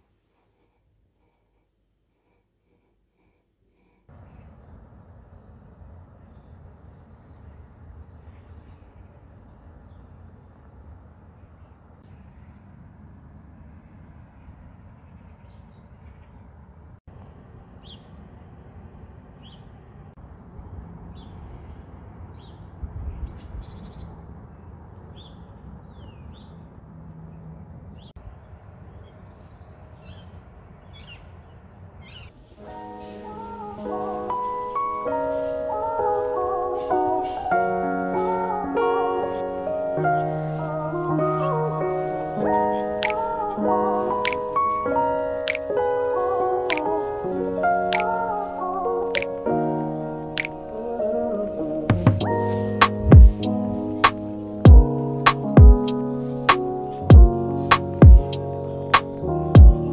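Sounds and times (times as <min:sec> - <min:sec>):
small birds chirping: 0:00.4 - 0:12.9, 0:19.3 - 0:38.6, 0:40.0 - 0:47.1.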